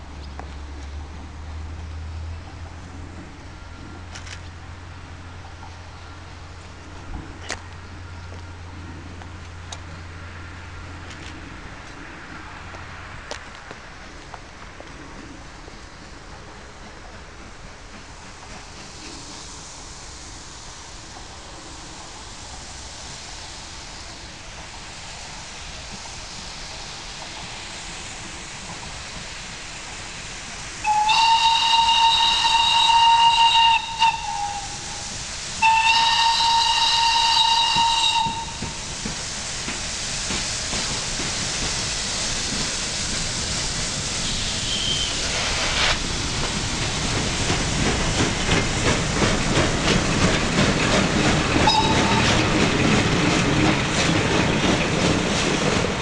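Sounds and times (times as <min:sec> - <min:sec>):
steam locomotive running: 0:00.0 - 0:56.0
train coaches rolling by: 0:00.0 - 0:56.0
steam locomotive whistle blasts: 0:30.8 - 0:38.8, 0:44.2 - 0:45.3, 0:51.6 - 0:52.4.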